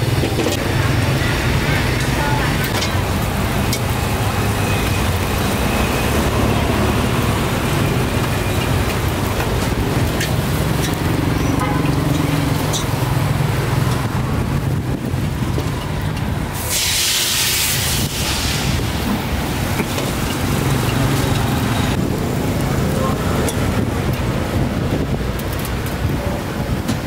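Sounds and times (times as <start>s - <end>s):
road traffic rumble: 0.0s - 27.0s
loud hiss: 16.6s - 19.7s.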